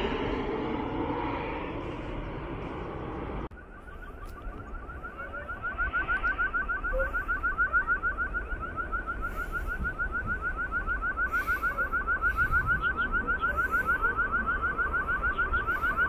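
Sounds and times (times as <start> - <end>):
jet airliner passing overhead: 0.0 - 16.0
rapid short rising chirps: 3.6 - 16.0.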